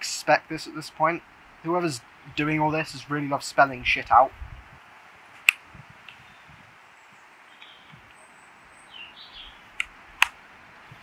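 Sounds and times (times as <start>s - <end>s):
steady low hiss: 0.0s - 11.0s
bird chirps: 6.1s - 9.7s.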